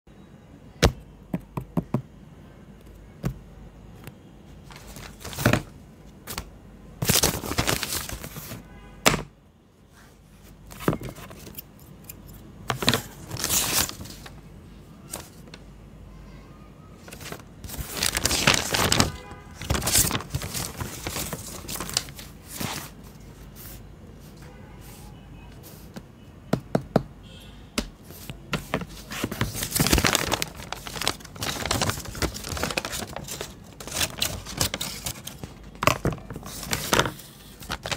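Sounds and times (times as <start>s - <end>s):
paper rustling and crinkling: 4.6s - 8.7s, 10.7s - 11.6s, 12.6s - 14.4s, 15.0s - 15.6s, 17.0s - 26.0s, 28.0s - 37.9s.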